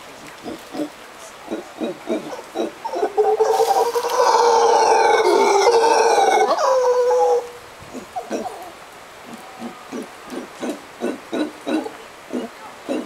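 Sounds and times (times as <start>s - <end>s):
monkey grunting: 1.5s - 3.6s, 7.9s - 13.0s
howler monkey roaring: 1.5s - 13.0s.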